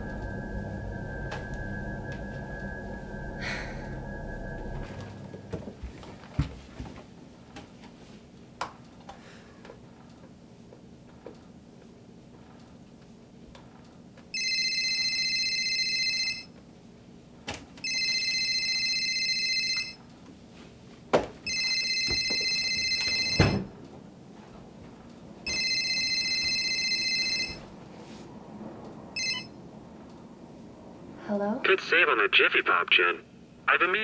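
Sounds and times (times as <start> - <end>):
telephone ringing: 0.0 - 5.7, 14.4 - 16.5, 17.8 - 20.0, 21.5 - 23.7, 25.5 - 27.7, 29.2 - 29.6.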